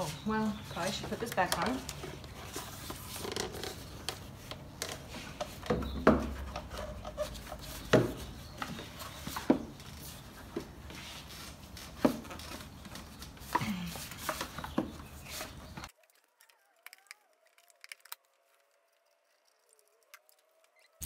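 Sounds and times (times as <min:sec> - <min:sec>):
plastic parts clicking: 0:15.9 - 0:21.0.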